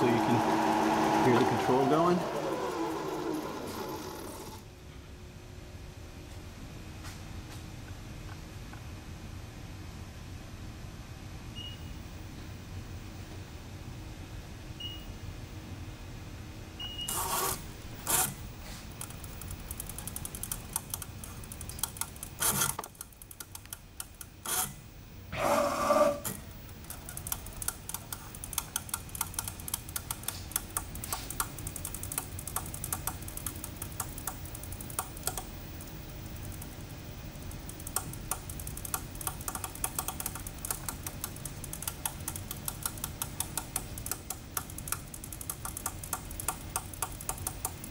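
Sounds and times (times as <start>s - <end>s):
fast steady machine ticking: 0.0s - 4.6s, 19.0s - 24.7s, 26.6s - 47.9s
short keypad beeps: 16.8s - 17.2s.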